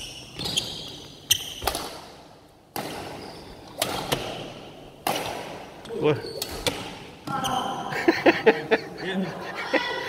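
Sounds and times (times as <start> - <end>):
racket hitting shuttlecock: 1.4 - 5.6, 6.4 - 7.1.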